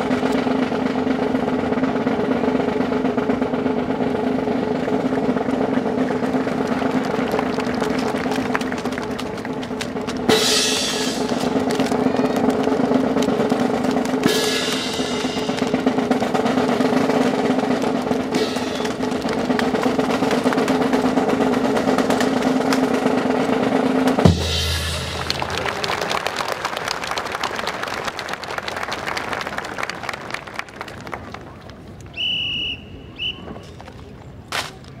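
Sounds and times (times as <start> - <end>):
snare drum roll: 0.0 - 26.7
sharp clacks: 6.6 - 23.1
deep bass drum boom: 24.3 - 25.8.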